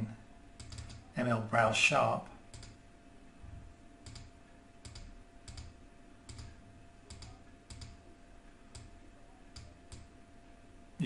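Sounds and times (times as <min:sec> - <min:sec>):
faint electrical hum: 0:00.0 - 0:11.0
computer mouse clicking: 0:00.6 - 0:01.1, 0:02.5 - 0:02.8, 0:04.0 - 0:08.0, 0:08.7 - 0:10.1.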